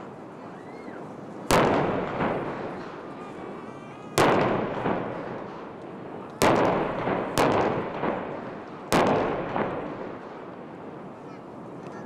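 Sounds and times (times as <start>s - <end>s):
firework shells bursting: 4.2s - 10.7s.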